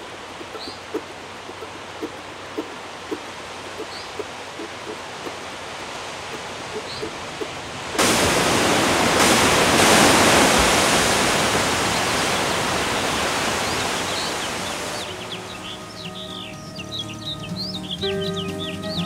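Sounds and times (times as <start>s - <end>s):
ocean wave crashing: 0.0s - 15.1s.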